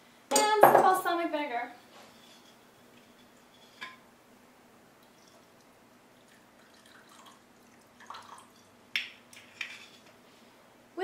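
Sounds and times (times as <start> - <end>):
liquid trickling into bowl: 6.2 - 8.8.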